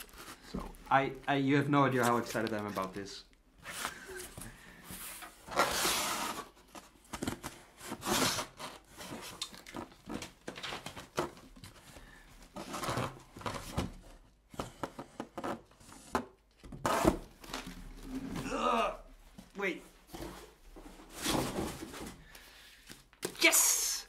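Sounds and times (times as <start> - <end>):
cardboard flaps rustling and scraping: 20.0 - 22.3.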